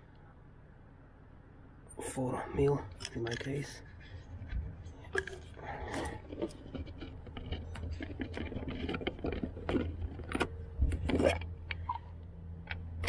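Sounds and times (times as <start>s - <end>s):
steady low hum: 0.0s - 13.0s
plastic cap scraping: 5.0s - 12.0s.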